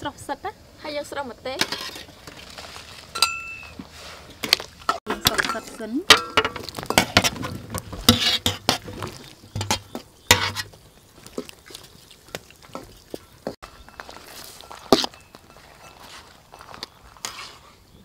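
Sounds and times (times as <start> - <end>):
metal utensils clinking against wok: 3.2 - 3.7, 4.9 - 7.4, 8.0 - 10.7.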